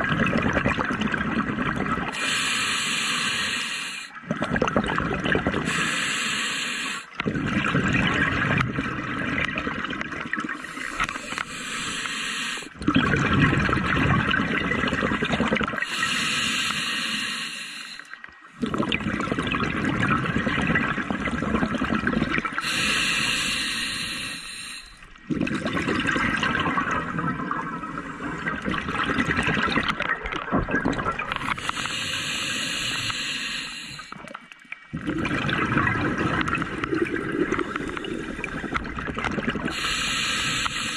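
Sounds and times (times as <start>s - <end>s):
rush of exhaled bubbles: 0.0s - 2.2s, 4.2s - 5.8s, 7.1s - 11.6s, 12.7s - 16.2s, 18.6s - 33.3s, 33.9s - 40.9s
regulator hiss on inhalation: 2.1s - 4.2s, 5.7s - 7.2s, 10.6s - 12.8s, 15.8s - 18.2s, 22.6s - 25.0s, 31.4s - 34.2s, 39.7s - 40.9s.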